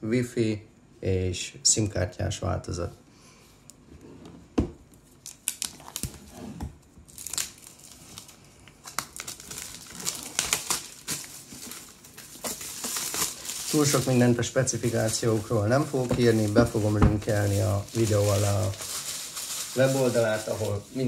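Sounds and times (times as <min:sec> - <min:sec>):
plastic shrink wrap crinkling: 0:04.9 - 0:21.0.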